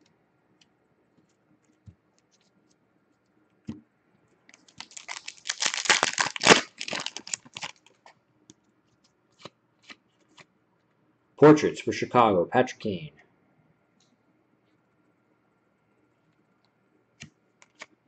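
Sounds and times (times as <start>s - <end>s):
foil wrapper tearing and crinkling: 4.5s - 8.0s.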